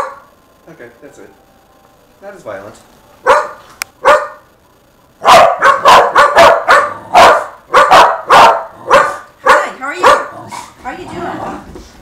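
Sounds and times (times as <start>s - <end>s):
dog barking: 0.0s - 0.3s, 3.2s - 4.4s, 5.2s - 10.3s.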